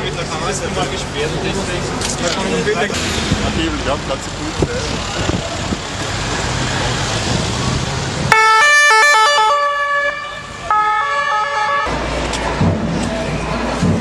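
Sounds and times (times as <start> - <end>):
crowd noise: 0.0 - 8.4, 9.5 - 14.0
street noise: 0.0 - 14.0
police siren: 8.3 - 12.0.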